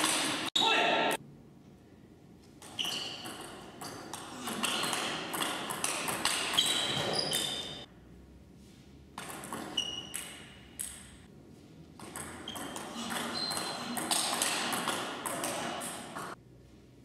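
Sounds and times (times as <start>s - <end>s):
table tennis ball hits: 2.6s - 7.4s, 9.2s - 11.2s, 12.0s - 16.4s.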